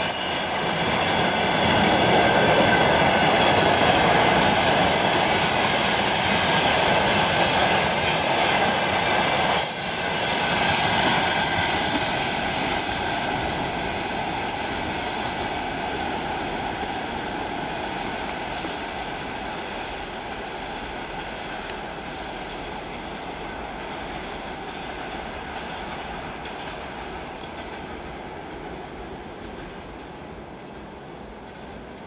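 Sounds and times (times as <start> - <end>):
train wheels rumbling on rail: 0.0 - 32.0
high-pitched squeal: 2.4 - 24.3.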